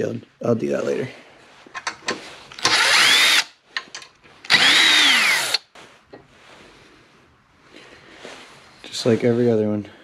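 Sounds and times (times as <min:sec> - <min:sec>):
cordless drill whining: 0:02.6 - 0:03.5, 0:04.4 - 0:05.6.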